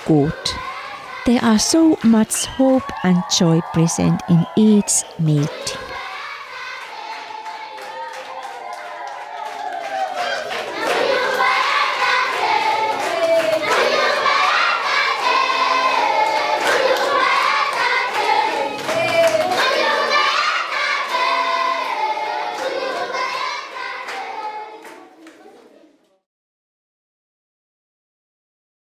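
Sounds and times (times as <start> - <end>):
children's choir singing: 0.0 - 25.2
hand claps: 6.8 - 25.5.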